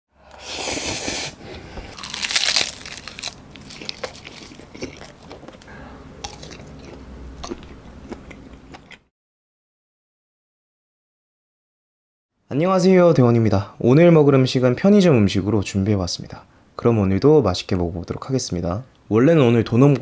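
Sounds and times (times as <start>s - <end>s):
wet chewing: 1.8s - 9.0s
crunchy bites: 1.9s - 9.0s.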